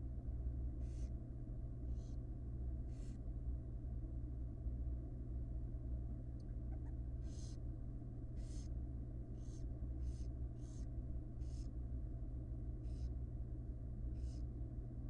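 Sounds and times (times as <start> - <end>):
steady low hum: 0.0 - 15.0
barn owls hissing: 0.8 - 1.1, 6.8 - 7.6, 8.4 - 8.8, 9.4 - 11.7, 12.8 - 13.2, 14.2 - 14.5.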